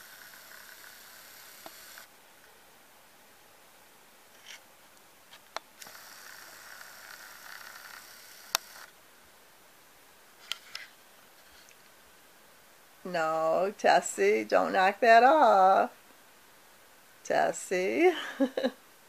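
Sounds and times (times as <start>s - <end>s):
camcorder zoom motor whining: 0.0s - 2.1s, 5.8s - 8.9s.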